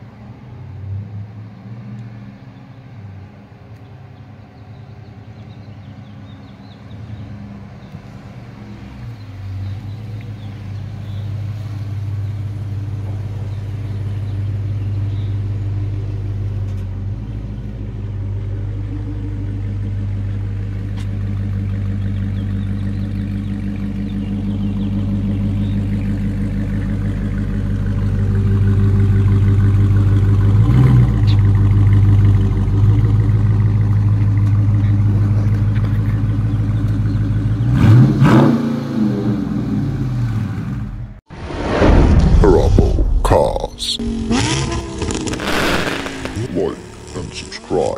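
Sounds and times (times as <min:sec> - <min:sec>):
car engine exhaust rumble: 0:03.0 - 0:41.2, 0:43.3 - 0:47.9
engine revving: 0:16.7 - 0:42.4, 0:43.8 - 0:47.9.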